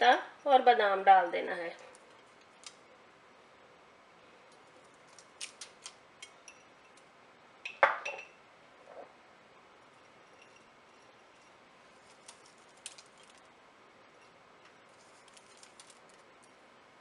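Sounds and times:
dish clinking with a ring: 7.7 - 8.4, 10.2 - 11.2.

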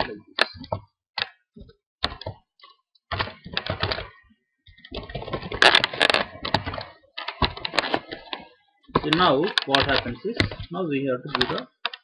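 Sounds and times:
keyboard typing: 2.0 - 4.2, 4.8 - 10.7, 11.3 - 12.0.

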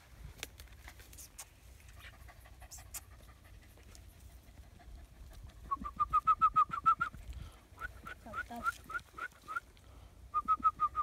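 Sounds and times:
small dog panting: 0.8 - 5.8.

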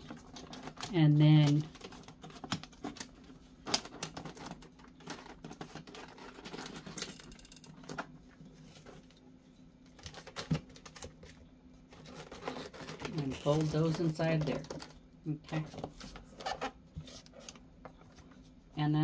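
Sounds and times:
wrapping paper crinkling: 0.0 - 7.4, 11.9 - 18.5.

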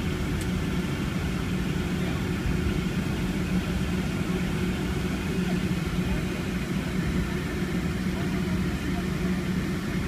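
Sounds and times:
jet engines rumbling in cabin: 0.0 - 10.0.

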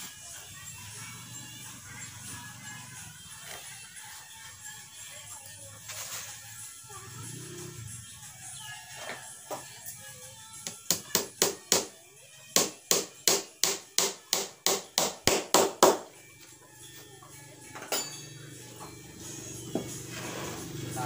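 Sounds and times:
hammer driving nails into wood: 12.6 - 16.1.

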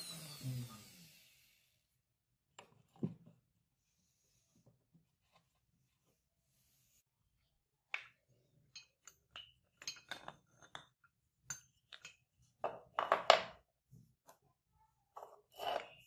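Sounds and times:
wooden blocks knocking and clinking: 7.9 - 13.7.

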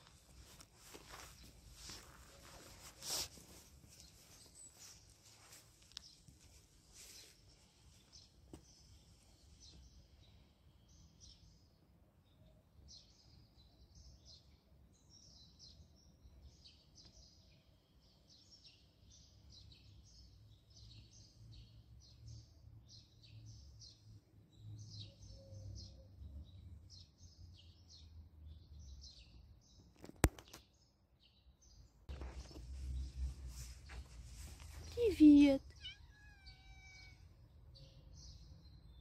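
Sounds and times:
small birds chirping: 0.0 - 39.0
sharp click: 30.0 - 30.6
outdoor background rumble: 32.1 - 35.8.

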